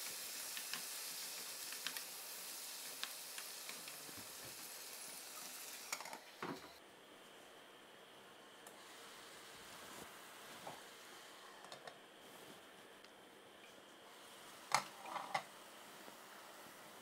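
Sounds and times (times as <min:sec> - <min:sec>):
vegetables sizzling in frying pan: 0:00.0 - 0:06.2.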